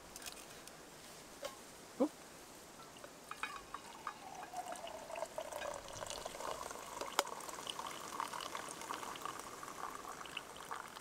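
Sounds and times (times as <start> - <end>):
coffee pouring into a mug: 3.3 - 11.0.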